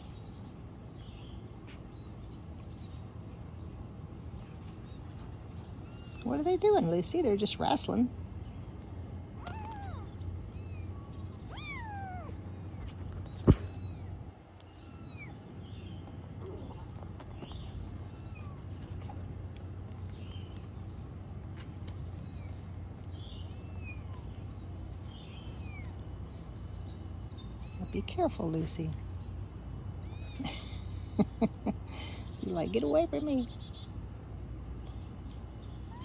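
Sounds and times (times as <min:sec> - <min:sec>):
kittens mewing: 0:09.3 - 0:15.6, 0:30.0 - 0:32.4.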